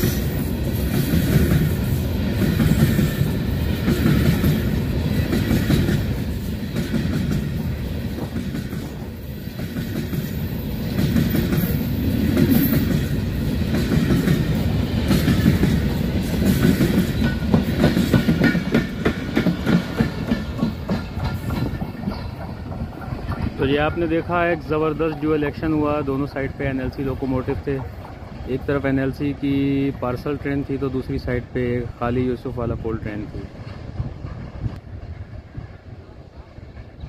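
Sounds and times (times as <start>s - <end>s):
wheels clacking over rail joints: 0.0s - 29.2s
freight wagons rumbling: 0.0s - 31.0s.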